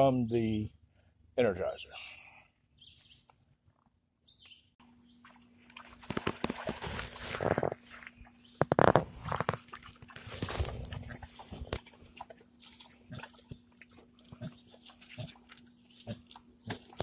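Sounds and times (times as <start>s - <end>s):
pigs crunching and scuffling: 5.2s - 17.0s.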